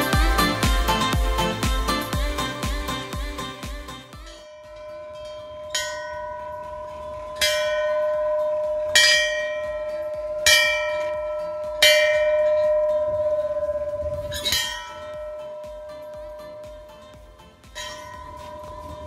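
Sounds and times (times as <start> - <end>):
bell ringing: 4.2 - 19.0.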